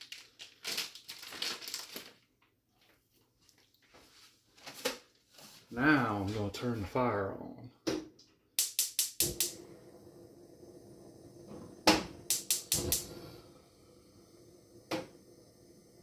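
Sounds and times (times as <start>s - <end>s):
gas stove igniter clicking: 8.6s - 9.9s, 11.8s - 13.4s
faint steady hum: 9.2s - 16.0s.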